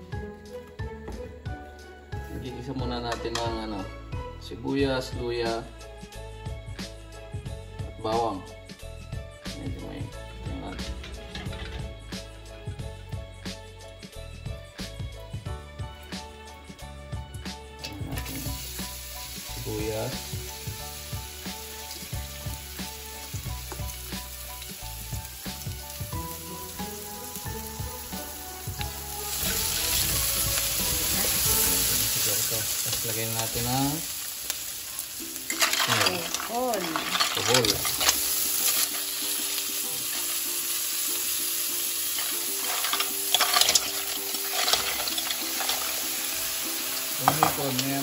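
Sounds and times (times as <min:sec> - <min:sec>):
shells and spatula clattering on bowl: 0:10.6 - 0:12.0, 0:35.4 - 0:39.2, 0:42.1 - 0:46.2, 0:47.2 - 0:48.0
onions sizzling in hot oil: 0:17.4 - 0:48.0.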